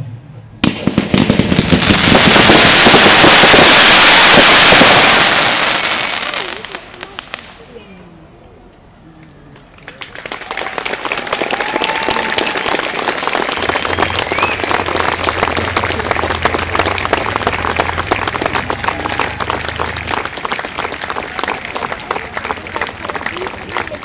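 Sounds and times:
crowd applauding: 0:09.5 - 0:24.0.

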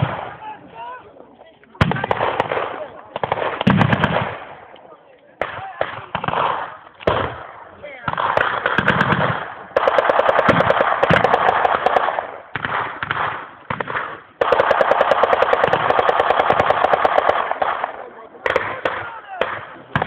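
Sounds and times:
machine gun automatic bursts: 0:08.2 - 0:12.1, 0:14.4 - 0:17.8.

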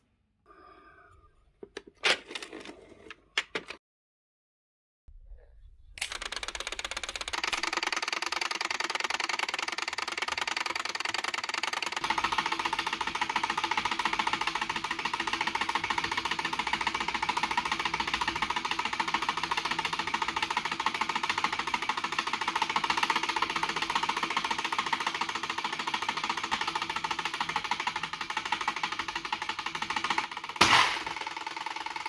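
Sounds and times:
clockwork timer ticking: 0:06.0 - 0:32.0.

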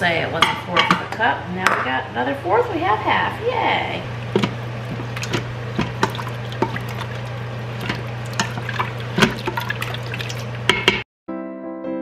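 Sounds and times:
liquid sloshing: 0:04.1 - 0:11.0
spatula scraping metal pot: 0:04.4 - 0:10.9.

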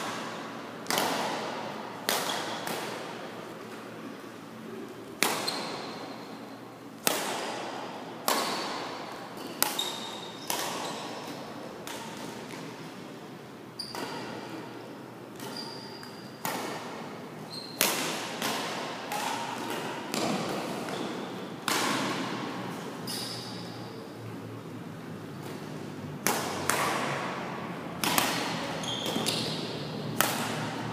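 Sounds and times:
rackets striking shuttlecock: 0:00.0 - 0:03.2, 0:07.0 - 0:12.8, 0:15.4 - 0:23.8, 0:25.4 - 0:30.9.

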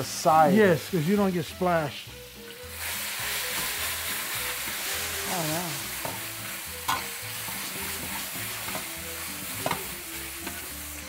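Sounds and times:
chicken sizzling in hot oil: 0:00.0 - 0:11.0
metal spatula clanking on pan: 0:06.8 - 0:07.2.

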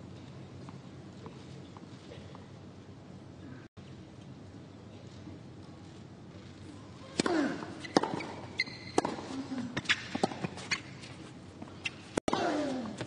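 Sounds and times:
quiet stadium crowd: 0:00.0 - 0:07.8
racket striking tennis ball: 0:07.1 - 0:10.9, 0:11.8 - 0:13.0.

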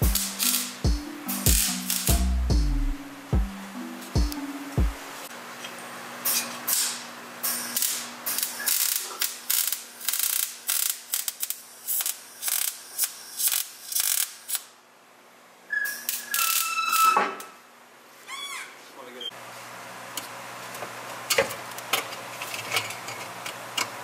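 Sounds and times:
welding arc crackling: 0:00.0 - 0:00.8, 0:01.4 - 0:02.2, 0:07.5 - 0:14.7
high tone sliding down: 0:00.0 - 0:05.3.

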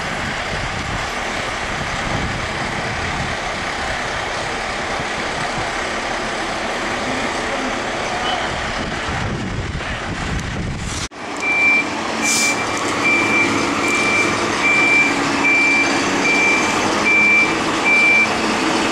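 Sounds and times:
fire engine running: 0:00.0 - 0:18.9
reversing alarm beeps: 0:11.4 - 0:18.4
short hiss: 0:12.2 - 0:12.6.

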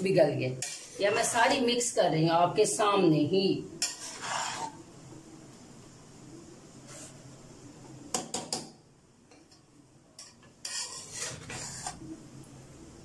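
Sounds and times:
metal spoon stirring rice in pot: 0:00.5 - 0:01.6, 0:03.8 - 0:04.8, 0:10.2 - 0:12.0.

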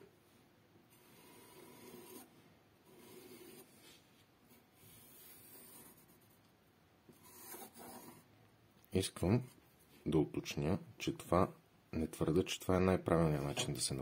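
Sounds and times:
pencil scratching on paper: 0:00.9 - 0:06.4, 0:07.1 - 0:08.3.

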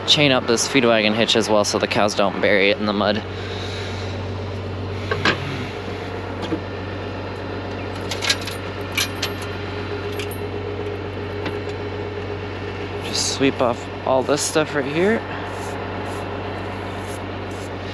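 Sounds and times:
tractor engine idling: 0:00.0 - 0:17.9
chain clinking on metal: 0:08.0 - 0:10.5.

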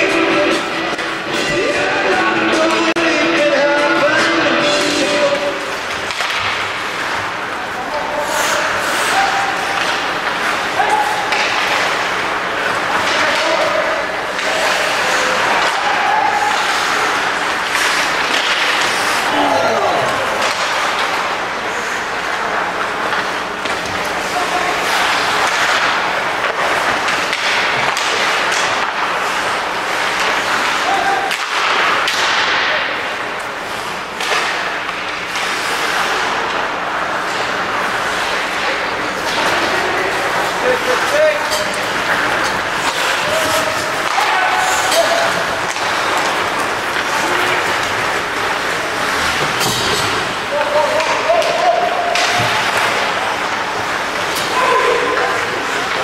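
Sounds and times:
arena noise: 0:00.0 - 0:56.0
skates scraping ice: 0:00.0 - 0:56.0
hockey sticks and puck knocking: 0:02.5 - 0:08.0, 0:08.6 - 0:21.6, 0:22.2 - 0:56.0
skates hissing on ice: 0:08.2 - 0:09.8
people shouting: 0:08.9 - 0:09.9, 0:10.7 - 0:11.7, 0:13.1 - 0:17.4, 0:30.6 - 0:31.5, 0:42.9 - 0:46.1, 0:54.4 - 0:55.4.

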